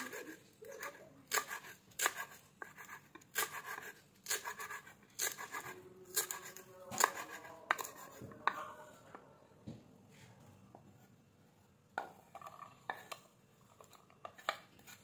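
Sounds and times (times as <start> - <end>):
knife cutting on wooden board: 0.0 - 8.5.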